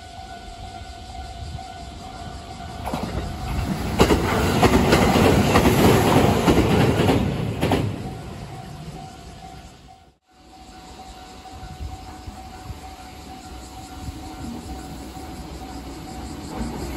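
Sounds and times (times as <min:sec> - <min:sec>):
electric train rumbling past: 0:00.0 - 0:16.9
wheels clacking over rail joints: 0:02.6 - 0:09.8
level crossing warning bell: 0:08.0 - 0:16.9.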